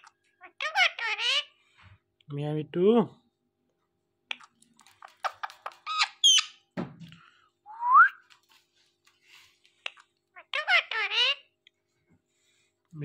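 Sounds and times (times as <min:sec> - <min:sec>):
parakeets chirping and squawking: 0:00.0 - 0:01.6, 0:04.8 - 0:06.7, 0:10.4 - 0:11.6
rising bird whistle: 0:07.7 - 0:08.2.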